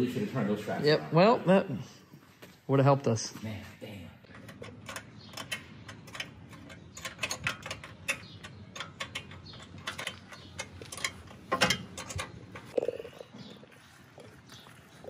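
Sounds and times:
metal tapping on metal: 0:04.3 - 0:12.8.

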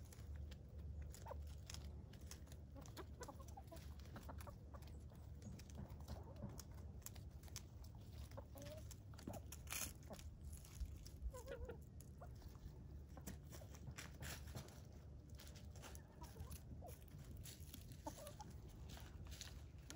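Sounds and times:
chickens pecking and scratching: 0:00.0 - 0:19.9
low steady rumble: 0:00.0 - 0:19.9
chicken clucks: 0:00.1 - 0:19.9.

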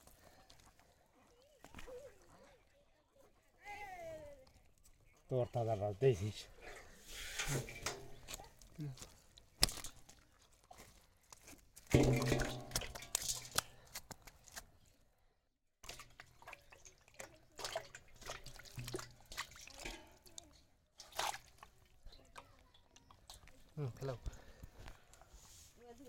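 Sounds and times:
water splashing and dripping: 0:06.6 - 0:14.7, 0:15.8 - 0:24.5.

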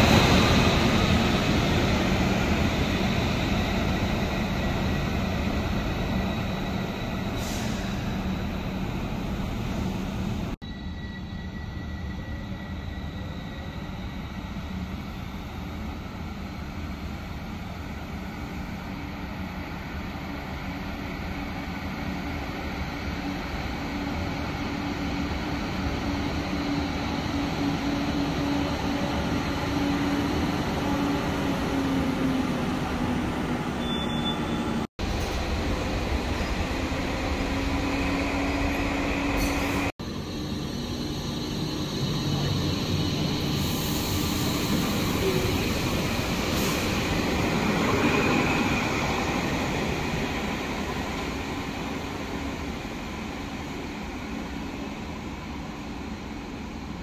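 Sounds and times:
tram wheel rumble: 0:00.0 - 0:10.6, 0:23.2 - 0:55.1.

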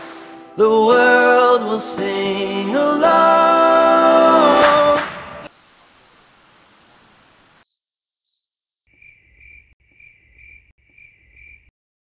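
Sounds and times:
crickets chirping: 0:05.5 - 0:11.7.

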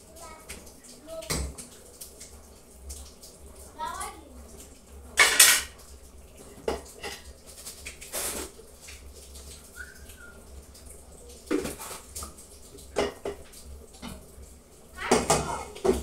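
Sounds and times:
cookware and utensils clattering: 0:05.2 - 0:05.8, 0:06.6 - 0:07.3, 0:13.0 - 0:13.4, 0:15.0 - 0:16.0.

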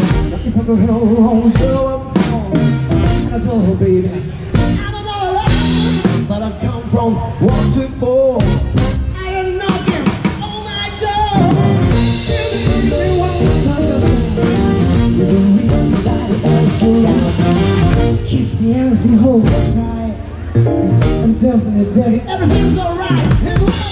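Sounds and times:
drums and cymbals: 0:00.0 - 0:03.7, 0:04.5 - 0:06.4, 0:07.4 - 0:20.0, 0:20.9 - 0:21.4, 0:22.5 - 0:23.9
person singing: 0:04.6 - 0:20.3, 0:21.0 - 0:23.9
electric guitar: 0:10.9 - 0:23.9.

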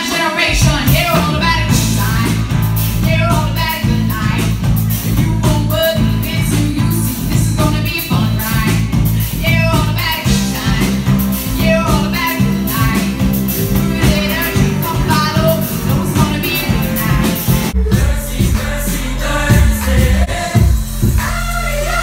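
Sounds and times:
drum kit: 0:00.0 - 0:22.0
electric bass: 0:00.5 - 0:22.0
woman singing into a microphone: 0:05.2 - 0:11.0.

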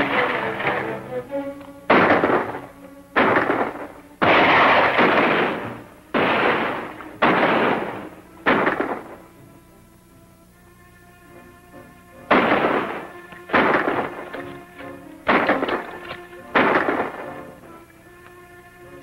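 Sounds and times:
echoing gunshots: 0:00.0 - 0:01.0, 0:01.9 - 0:09.4, 0:12.3 - 0:14.6, 0:15.2 - 0:17.8
background film music: 0:00.0 - 0:19.0.

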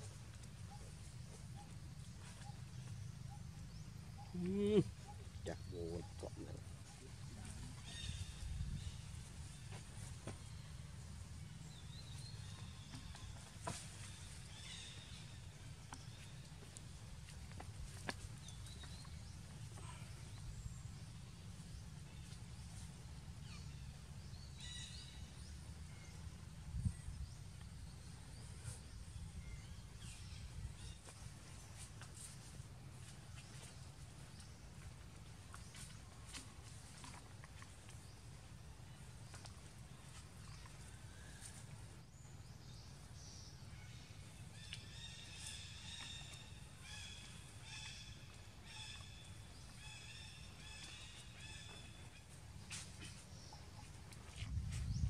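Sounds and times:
low outdoor rumble: 0:00.0 - 0:55.0.

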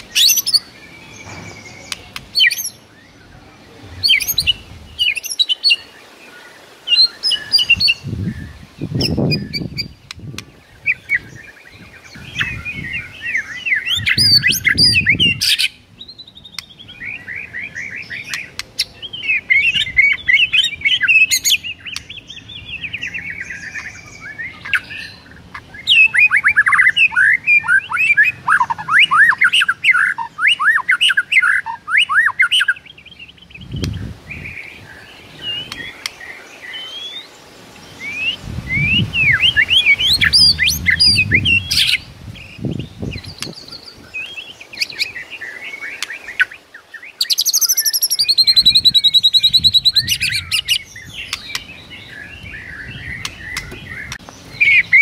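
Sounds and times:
bird singing whistled phrases: 0:38.0 - 0:46.6, 0:47.2 - 0:55.0
low rumble: 0:38.6 - 0:42.8.

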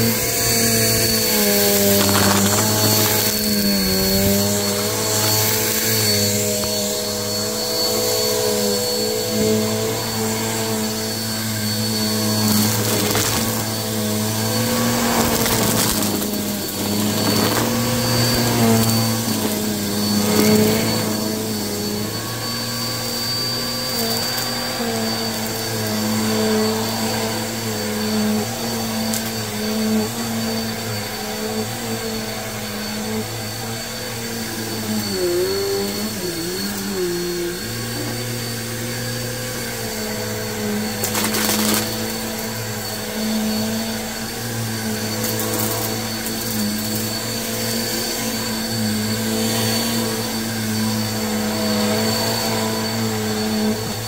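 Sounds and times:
vacuum cleaner running: 0:00.0 - 0:54.0
grit crackling into vacuum: 0:01.6 - 0:04.8.

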